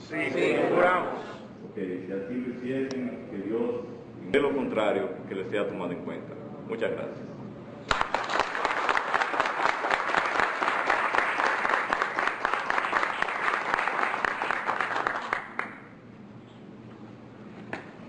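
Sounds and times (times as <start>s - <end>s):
people applauding: 7.9s - 15.9s.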